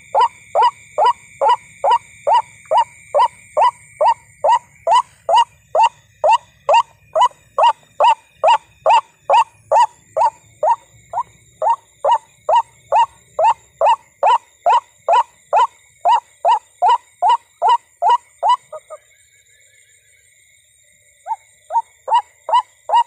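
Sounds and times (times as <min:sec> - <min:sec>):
waterhen calling: 0:00.0 - 0:10.8, 0:11.6 - 0:19.0.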